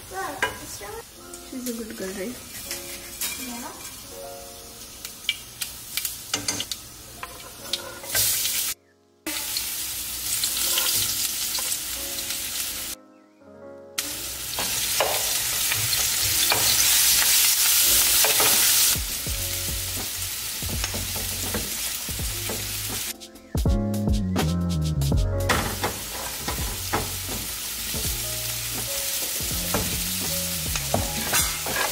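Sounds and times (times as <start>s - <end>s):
potatoes sizzling in hot oil: 0.0s - 13.0s, 14.0s - 23.1s, 25.5s - 31.9s
metal spoon stirring in pan: 2.5s - 4.0s, 6.3s - 8.5s, 10.5s - 11.8s, 30.9s - 31.9s.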